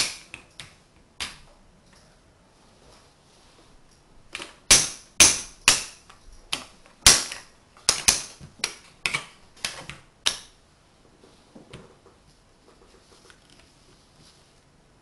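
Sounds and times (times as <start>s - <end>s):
wooden blocks clacking together: 4.4s - 10.5s.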